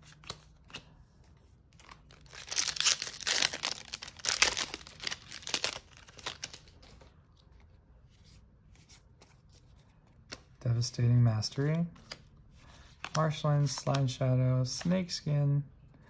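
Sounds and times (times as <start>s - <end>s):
foil wrapper tearing and crinkling: 2.1s - 6.7s.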